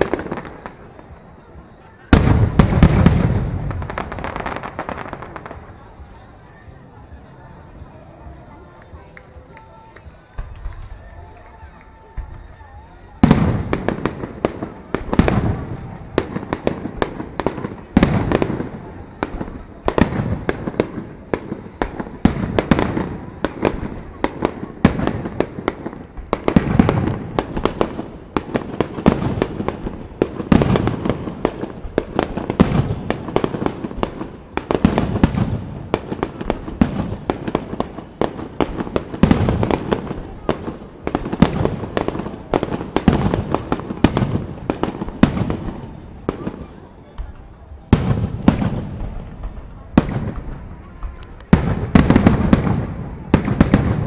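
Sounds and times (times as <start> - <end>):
fireworks bangs echoing: 0.0 - 54.0.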